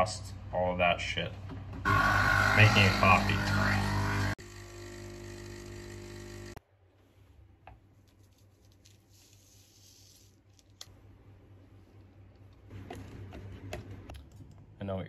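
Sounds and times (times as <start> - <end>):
coffee machine pump humming: 1.9 - 6.6
rustling: 7.8 - 10.9.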